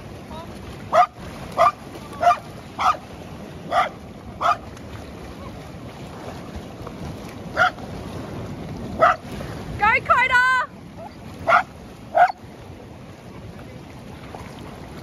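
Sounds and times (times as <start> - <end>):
background rush of surf or wind: 0.0 - 15.0
dog barking: 0.9 - 3.0, 3.7 - 4.6, 7.6 - 7.8, 9.0 - 9.2, 11.0 - 12.4.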